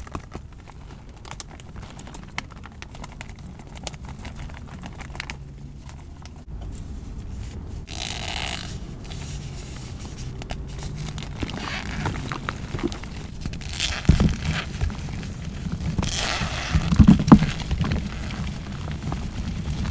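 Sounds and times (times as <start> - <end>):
chalk crunching and crumbling: 6.7 - 19.9
gritty crunch: 10.0 - 19.9.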